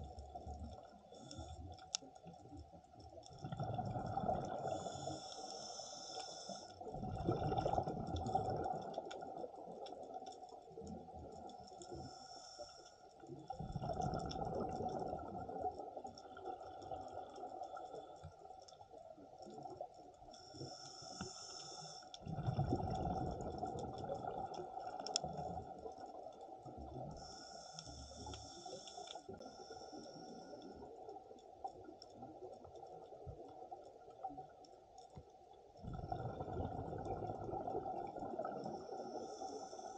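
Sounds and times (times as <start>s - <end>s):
exhaled bubbles underwater: 0.0s - 5.4s, 6.8s - 11.7s, 13.3s - 20.6s, 22.2s - 27.4s, 29.3s - 34.6s, 35.7s - 39.9s
regulator hiss on inhalation: 4.6s - 6.9s, 11.9s - 13.0s, 20.4s - 22.1s, 27.2s - 30.7s, 38.6s - 39.9s.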